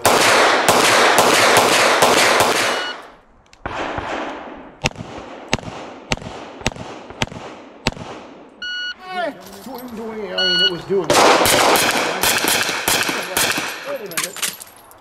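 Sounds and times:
pistol shots: 0:00.0 - 0:03.0, 0:03.6 - 0:08.4, 0:11.1 - 0:13.9.

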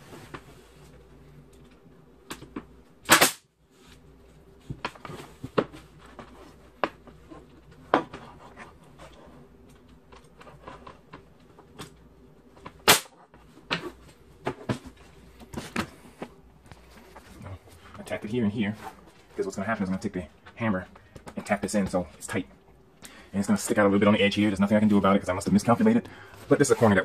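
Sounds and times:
nail gun shots: 0:03.1 - 0:03.4, 0:12.8 - 0:13.1.

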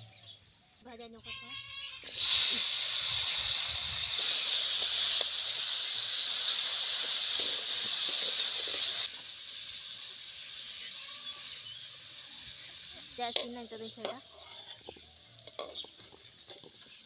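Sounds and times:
potatoes sizzling in hot oil: 0:02.1 - 0:17.0
metal spatula scraping: 0:12.6 - 0:17.0.

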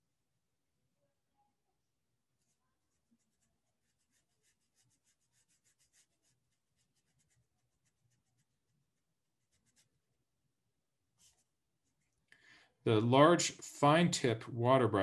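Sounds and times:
brush tip scratching on paper: 0:02.4 - 0:10.0, 0:11.2 - 0:12.1.

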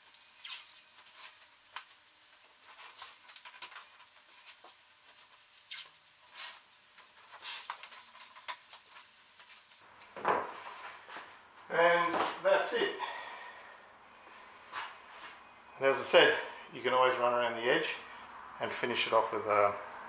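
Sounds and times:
tape ripping: 0:00.0 - 0:02.0, 0:02.6 - 0:09.8.

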